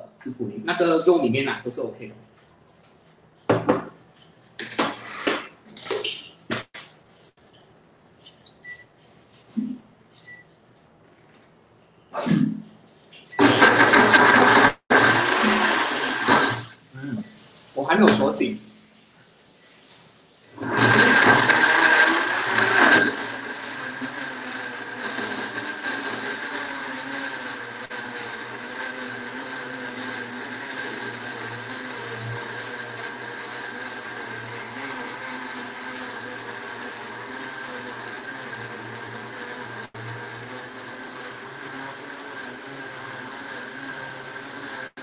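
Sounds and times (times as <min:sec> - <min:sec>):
blender grinding meat: 0:13.4 - 0:16.8, 0:20.6 - 0:45.0.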